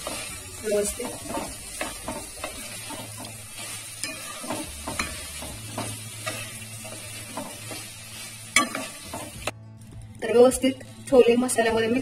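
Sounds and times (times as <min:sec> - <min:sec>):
wooden spatula scraping metal pan: 0:00.0 - 0:09.5
masala sizzling in oil: 0:00.0 - 0:09.6.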